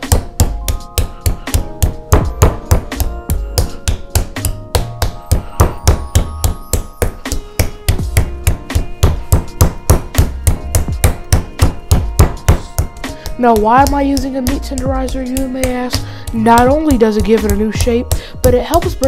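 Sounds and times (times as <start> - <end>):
mallet pounding meat on plastic board: 0.0 - 14.8
background music: 0.0 - 19.0.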